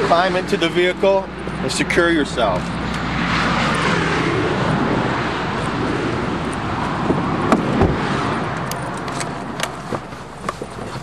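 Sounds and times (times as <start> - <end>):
traffic roar of tyres and wind: 0.0 - 11.0.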